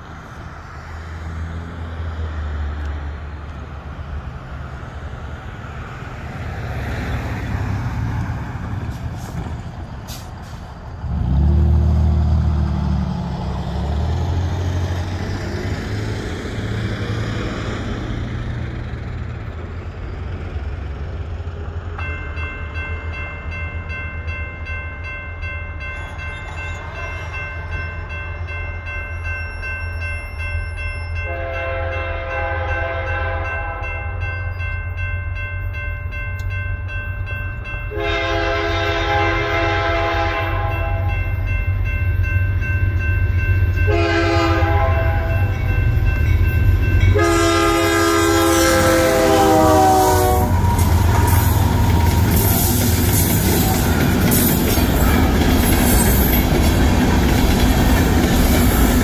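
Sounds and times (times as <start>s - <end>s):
heavy vehicle engine: 0.0s - 22.0s, 46.7s - 59.0s
road traffic passing: 0.0s - 59.0s
crossing warning bell ringing: 19.8s - 59.0s.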